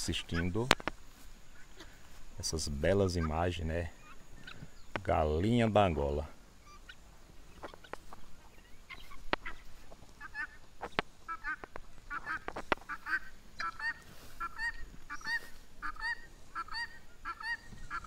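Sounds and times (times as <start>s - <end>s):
guineafowl calling: 0.0s - 18.0s
guineafowl clicks: 0.4s - 1.0s, 8.9s - 9.6s, 10.2s - 18.0s.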